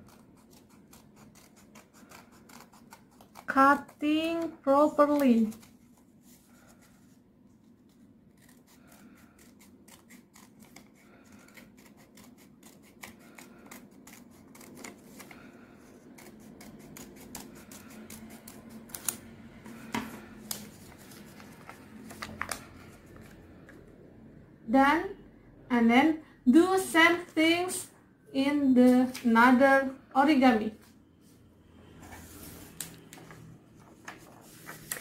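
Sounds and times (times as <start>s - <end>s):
scissors snipping paper: 0.0s - 6.0s, 7.9s - 22.7s.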